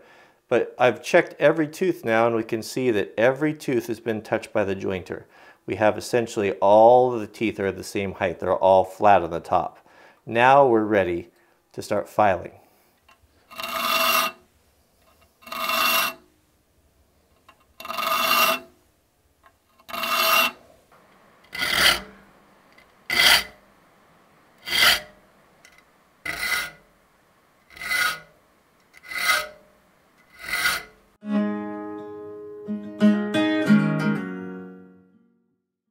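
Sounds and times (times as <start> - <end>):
file rasping across saw teeth: 13.5 - 14.4, 15.0 - 16.2, 17.8 - 18.7, 19.8 - 20.6, 21.5 - 22.2, 23.1 - 23.6, 24.6 - 25.2, 26.3 - 26.8, 27.7 - 28.3, 29.0 - 29.6, 30.2 - 31.0
music: 31.2 - 35.7.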